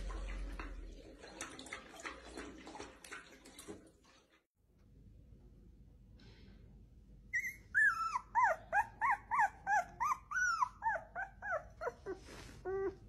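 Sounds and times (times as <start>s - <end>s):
puppy whimpering and squealing: 7.3s - 13.0s.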